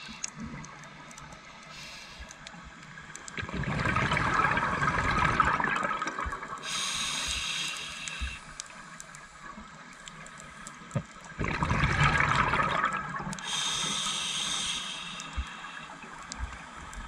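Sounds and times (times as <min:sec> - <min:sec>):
regulator inhalation hiss: 0:01.7 - 0:02.4, 0:06.6 - 0:08.9, 0:13.4 - 0:16.2
exhaled bubbles underwater: 0:03.2 - 0:07.0, 0:10.9 - 0:13.6.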